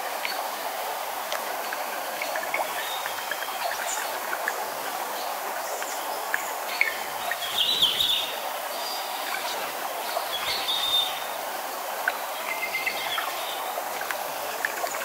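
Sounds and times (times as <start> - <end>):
small waterfall rushing into pool: 0.0 - 15.0
birds chirping: 5.7 - 11.4, 12.1 - 13.7.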